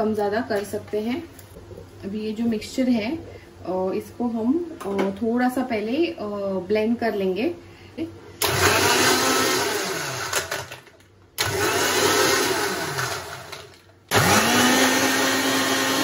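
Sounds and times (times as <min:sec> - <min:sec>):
mixer grinder motor whining: 0:08.4 - 0:10.8, 0:11.4 - 0:16.0.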